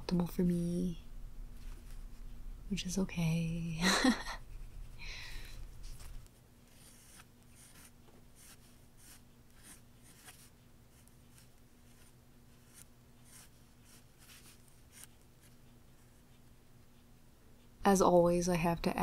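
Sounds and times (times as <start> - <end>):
faint steady hum: 0.0 - 19.0
pencil scratching on paper: 5.8 - 16.5.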